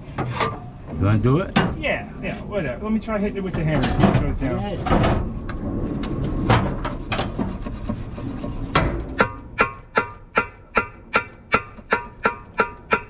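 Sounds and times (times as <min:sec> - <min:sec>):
hammer striking metal: 0:09.2 - 0:13.0.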